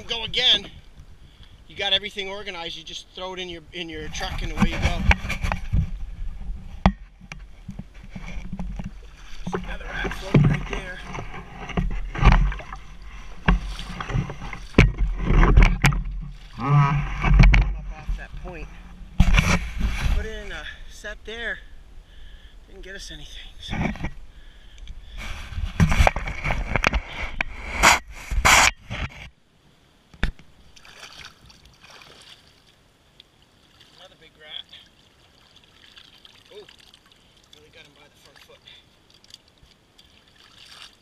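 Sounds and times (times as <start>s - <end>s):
water sloshing around waders: 4.2s - 20.4s, 30.7s - 41.0s
low steady rumble: 5.6s - 28.1s
paddle strokes splashing: 7.7s - 17.5s, 30.8s - 32.8s, 33.6s - 41.0s.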